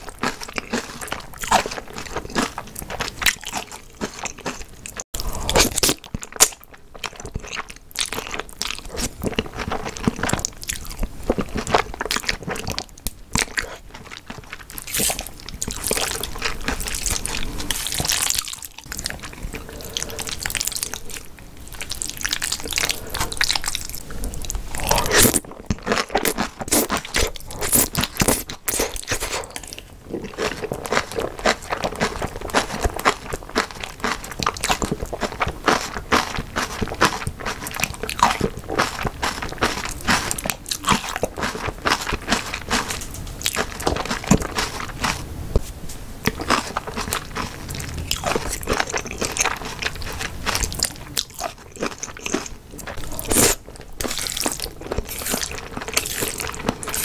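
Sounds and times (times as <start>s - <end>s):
wet chewing: 0.0s - 57.0s
noodles slurped: 21.8s - 45.2s.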